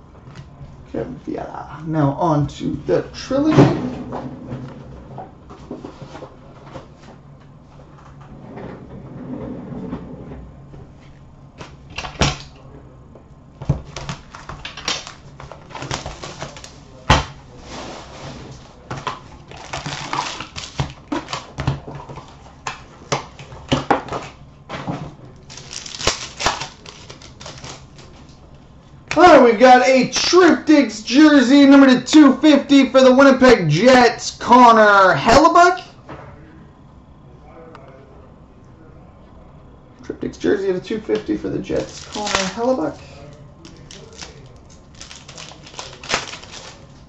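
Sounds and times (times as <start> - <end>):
cardboard and wrappers rustling: 13.8 - 24.2, 24.9 - 28.3, 41.6 - 47.0.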